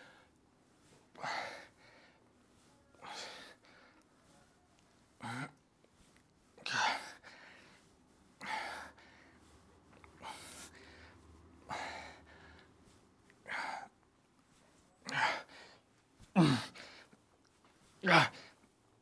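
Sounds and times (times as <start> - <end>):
man grunting: 16.4 - 16.8, 18.0 - 18.5.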